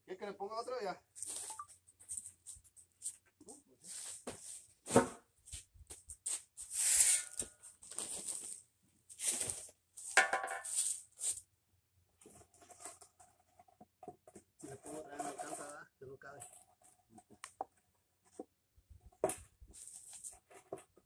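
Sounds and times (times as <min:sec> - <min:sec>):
sand scraping on pavers: 0:03.8 - 0:04.7, 0:05.5 - 0:11.4, 0:14.8 - 0:15.8, 0:19.7 - 0:20.7.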